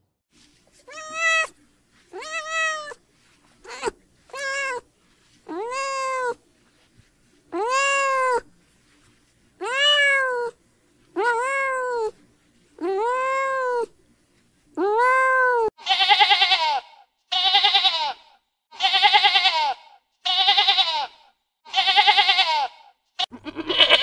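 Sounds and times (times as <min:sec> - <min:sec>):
cat meowing: 0:00.8 - 0:03.0, 0:03.6 - 0:04.8, 0:05.5 - 0:06.4, 0:07.6 - 0:08.5, 0:09.6 - 0:10.6, 0:11.2 - 0:12.2.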